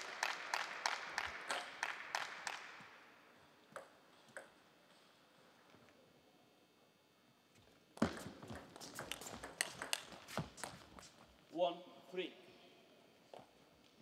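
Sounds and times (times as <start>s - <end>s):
hand clapping echoing: 0.0s - 3.2s
table tennis ball bouncing: 3.6s - 4.6s, 8.0s - 11.0s.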